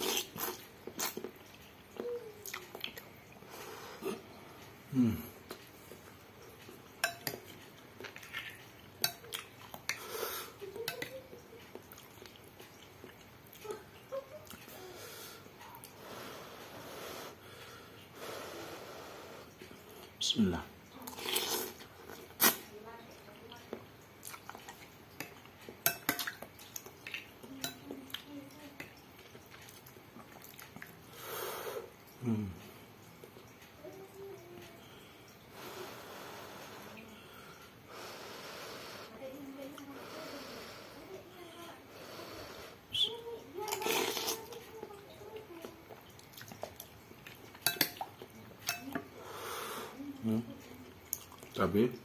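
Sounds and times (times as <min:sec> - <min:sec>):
soft chewing: 0:00.0 - 0:20.2, 0:20.8 - 0:52.0
cutlery clinking on glass bowl: 0:07.0 - 0:09.4, 0:25.2 - 0:26.5, 0:47.5 - 0:49.1
spoon clinking on glass bowl: 0:25.8 - 0:26.4, 0:47.6 - 0:49.0.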